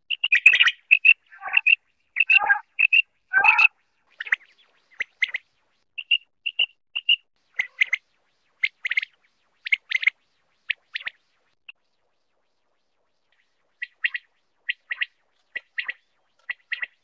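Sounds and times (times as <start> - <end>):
quail calling: 0.1 - 4.4, 6.0 - 8.0.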